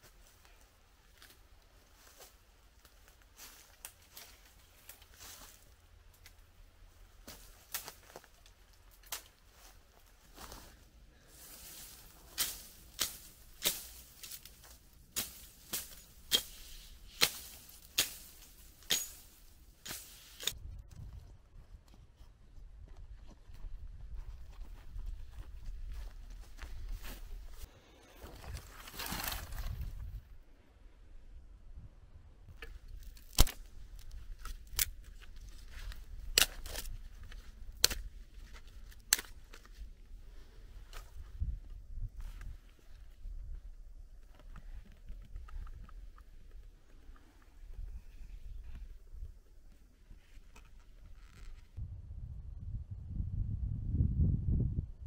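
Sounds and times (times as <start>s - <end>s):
dry branches snapping: 7.2s - 9.5s, 11.6s - 20.6s, 28.5s - 29.9s, 32.6s - 39.8s
twigs crackling when handled: 7.2s - 10.8s, 11.4s - 20.6s, 26.5s - 30.1s, 32.6s - 39.9s
low rumble: 51.8s - 55.0s.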